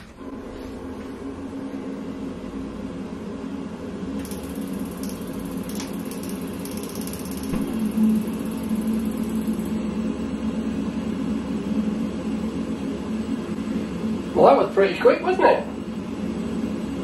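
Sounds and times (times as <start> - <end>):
boiler fan and pump humming: 0.0 - 17.0
fast high ticking: 4.2 - 9.7
burner igniting thump: 7.4 - 7.7.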